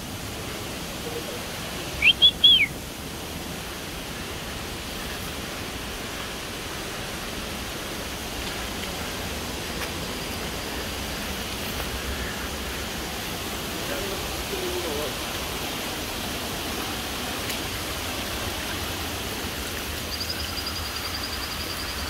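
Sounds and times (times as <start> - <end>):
flowing water rushing: 0.0 - 22.0
bird chirping: 2.0 - 2.7.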